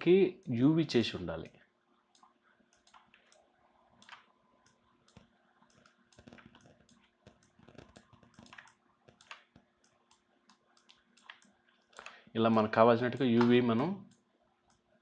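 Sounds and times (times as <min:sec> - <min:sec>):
computer mouse clicks: 0:02.1 - 0:12.2, 0:13.1 - 0:14.9.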